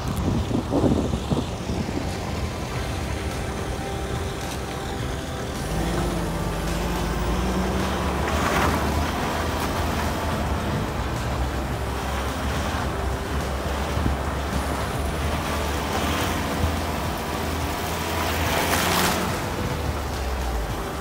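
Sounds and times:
off-road vehicle engine and tyre rumble: 0.0 - 21.0
rush of wind noise: 0.0 - 21.0.

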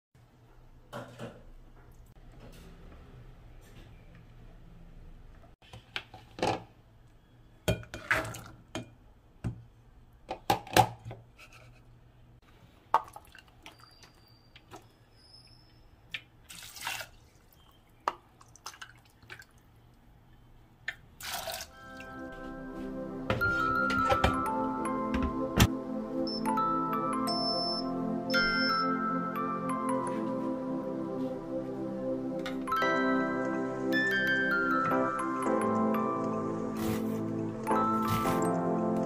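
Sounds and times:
water pouring: 16.4 - 17.6, 18.4 - 19.6, 21.2 - 22.0
background music: 21.7 - 39.0.

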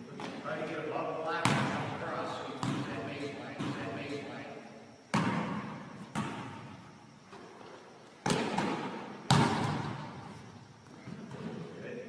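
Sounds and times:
basketball thudding on gym floor: 1.4 - 1.9, 5.1 - 6.7, 8.2 - 10.2.

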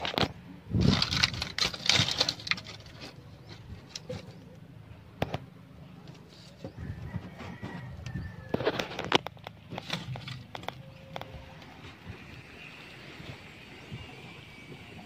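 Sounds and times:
dry straw burning and crackling: 0.0 - 4.1
rustling: 0.0 - 4.6, 5.2 - 12.0.

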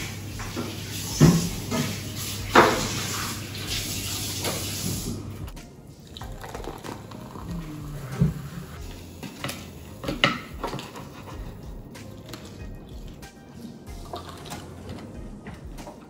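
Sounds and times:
soda pouring and fizzing: 0.0 - 5.3, 6.0 - 11.0, 13.9 - 14.8.

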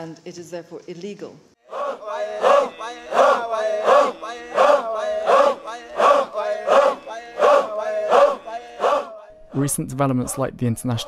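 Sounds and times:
crowd chanting in unison: 1.6 - 9.4.

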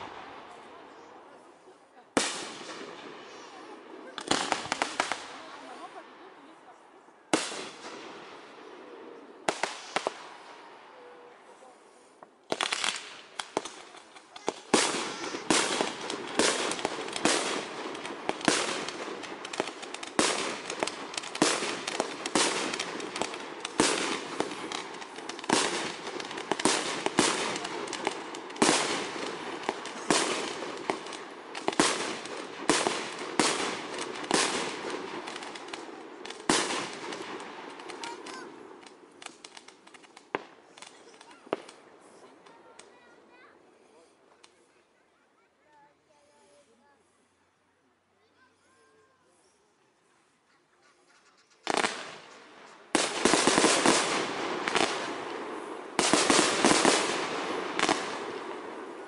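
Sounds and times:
fireworks shells bursting: 12.5 - 43.0, 51.0 - 59.0.

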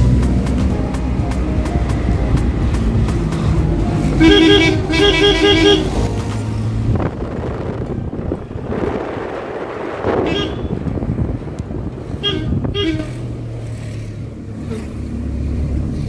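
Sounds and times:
car engine humming: 0.0 - 16.0
car horn toots: 4.2 - 6.1, 10.2 - 10.9, 12.2 - 13.4.

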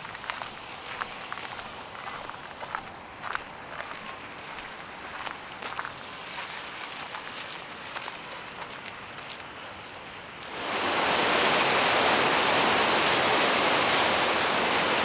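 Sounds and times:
footsteps on gravel: 0.0 - 10.6
river rapids rushing: 10.4 - 15.0.

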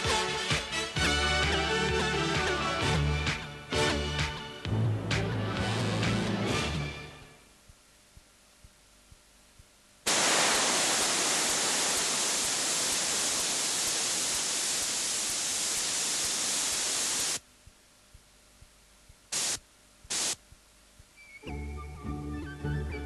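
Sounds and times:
loud static hiss: 0.0 - 21.8
faint ticks: 7.7 - 9.8.

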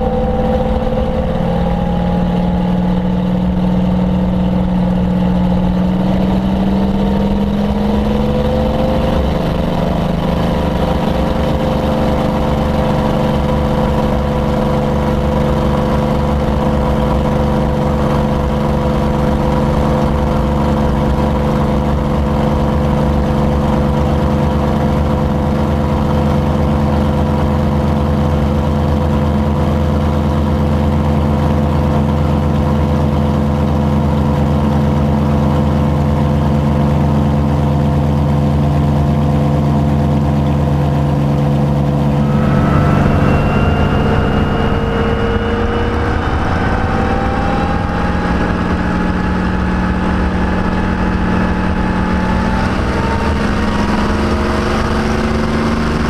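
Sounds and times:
aircraft engine drone: 0.0 - 56.0.

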